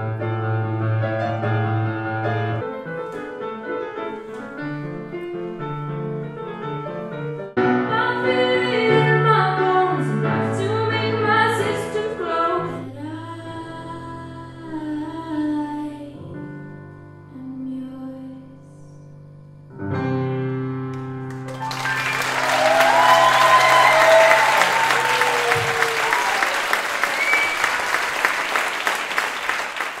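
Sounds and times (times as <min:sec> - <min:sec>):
grand piano: 0:00.0 - 0:30.0
woman singing: 0:07.8 - 0:16.5, 0:17.3 - 0:19.0
audience applauding: 0:21.0 - 0:30.0
cheering: 0:21.4 - 0:30.0.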